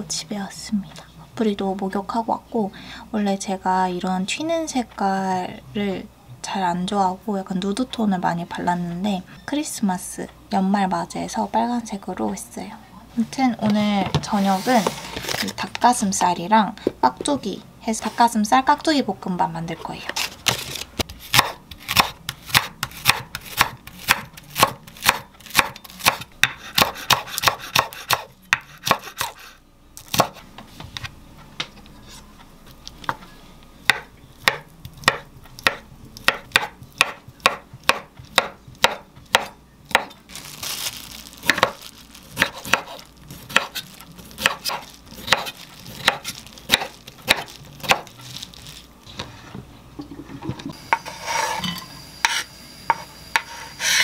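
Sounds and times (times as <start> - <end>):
knife chopping on wooden board: 20.5 - 29.4, 30.1 - 30.4, 33.9 - 40.2, 41.4 - 41.8, 42.4 - 43.8, 44.4 - 48.1, 52.2 - 54.0.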